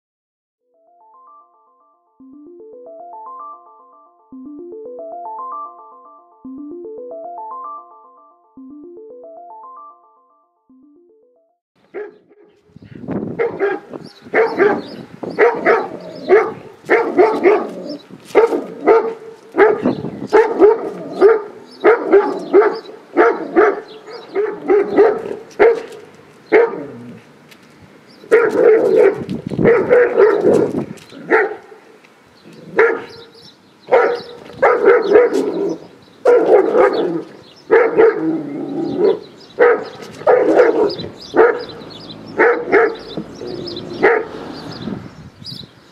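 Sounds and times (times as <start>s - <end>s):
dog barking aggressively: 11.9s - 12.6s, 13.4s - 27.1s, 28.3s - 31.8s, 32.6s - 44.7s.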